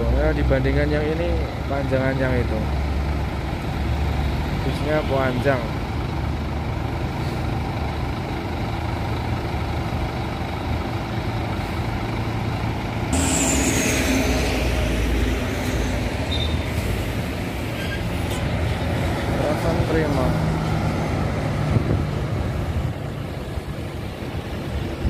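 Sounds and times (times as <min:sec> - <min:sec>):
diesel engine rumbling: 0:00.0 - 0:25.0
air brakes hissing: 0:13.1 - 0:18.5.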